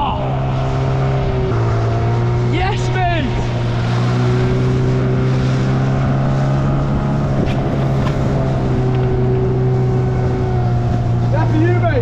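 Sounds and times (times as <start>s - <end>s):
boat engine droning: 0.0s - 12.0s.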